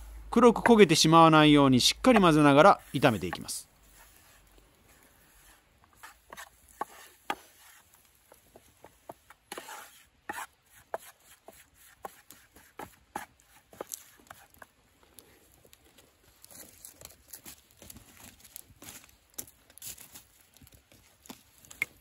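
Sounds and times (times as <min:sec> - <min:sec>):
wood fire crackling: 0:00.0 - 0:22.0
wooden spatula scraping a pan: 0:02.1 - 0:15.4.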